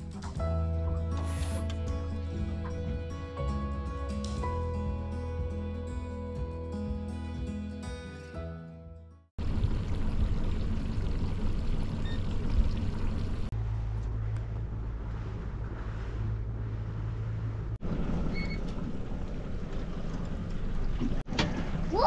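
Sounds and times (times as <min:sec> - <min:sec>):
boat motor running: 0:09.4 - 0:21.7
water noise: 0:09.4 - 0:22.0
wind: 0:09.4 - 0:22.0.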